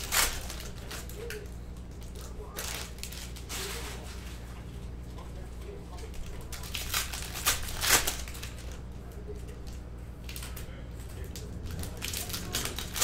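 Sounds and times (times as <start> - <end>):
foil packs tearing: 0.0 - 4.4, 6.0 - 8.8, 10.3 - 13.0
wrappers crinkling: 0.0 - 13.0.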